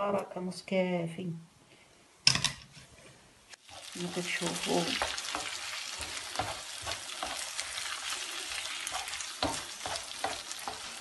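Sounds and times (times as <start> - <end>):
spatula scraping and knocking a pan: 3.6 - 11.0
vegetables sizzling in oil: 3.6 - 11.0.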